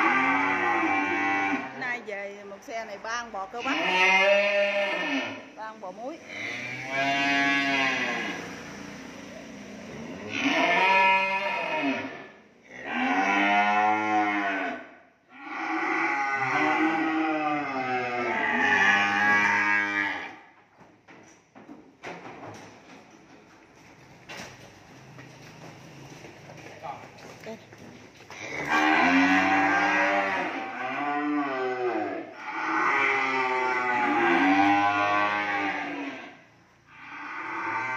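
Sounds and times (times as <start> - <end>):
cattle mooing: 0.0 - 1.9, 3.6 - 5.5, 6.2 - 8.7, 9.9 - 20.4, 28.4 - 37.9.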